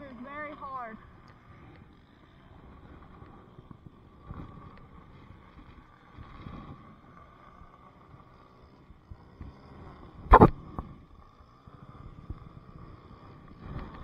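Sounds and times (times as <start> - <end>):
low wind rumble: 0.0 - 14.0
microphone handling noise: 10.3 - 10.6.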